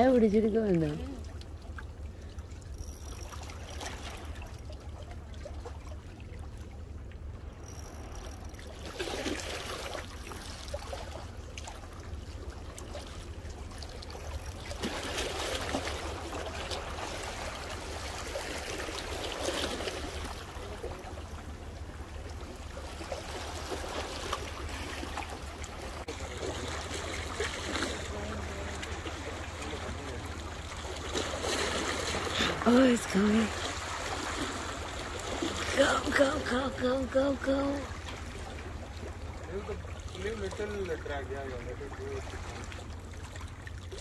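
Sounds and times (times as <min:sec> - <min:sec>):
sea water splashing on rocks: 0:08.0 - 0:36.8.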